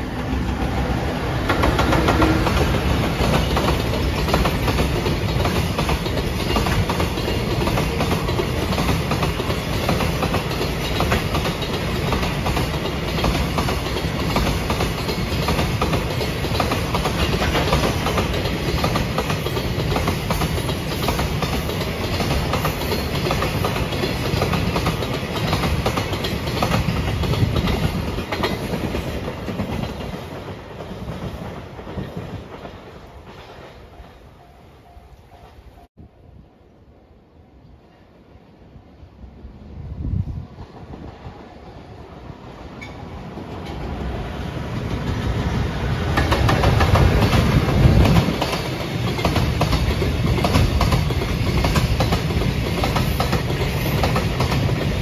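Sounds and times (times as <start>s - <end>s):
train wagons rolling past: 0.0s - 35.8s, 40.1s - 55.0s
wheels clicking over rail joints: 1.4s - 33.7s.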